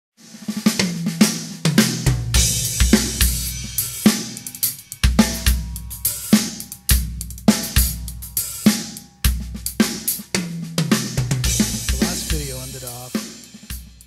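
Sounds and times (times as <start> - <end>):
cymbals: 0.2 - 14.0
snare drum hits: 10.9 - 13.9.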